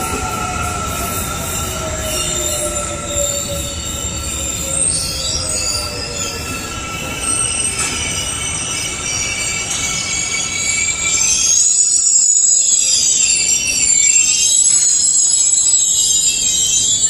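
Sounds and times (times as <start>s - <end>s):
subway train rumble: 0.0s - 17.0s
train whine: 0.0s - 17.0s
wheel squeals: 0.0s - 17.0s.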